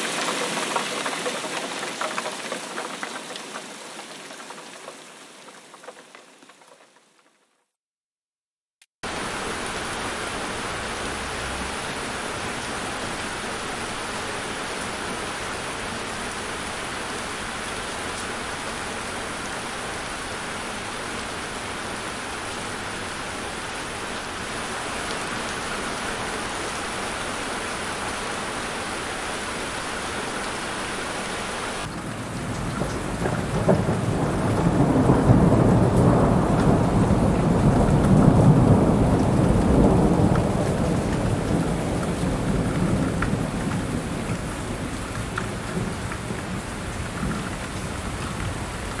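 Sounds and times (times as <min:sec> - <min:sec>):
heavy rain: 0:00.0 - 0:07.6, 0:09.0 - 0:49.0
low rumble of thunder: 0:31.9 - 0:48.8.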